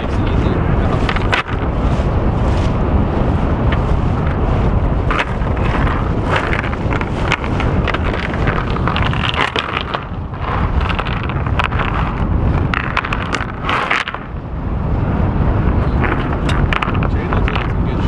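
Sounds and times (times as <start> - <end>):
water washing along hull: 0.0 - 18.0
wind buffeting microphone: 0.0 - 18.0.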